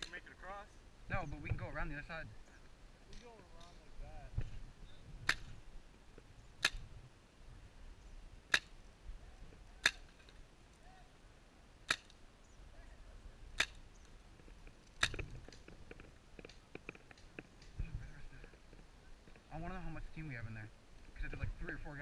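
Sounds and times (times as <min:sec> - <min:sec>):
paintball marker shots: 0:05.2 - 0:05.6, 0:06.6 - 0:07.0, 0:08.5 - 0:08.8, 0:09.8 - 0:10.4, 0:11.8 - 0:12.2, 0:13.6 - 0:13.9, 0:14.8 - 0:15.7
faint clicks: 0:13.6 - 0:19.5.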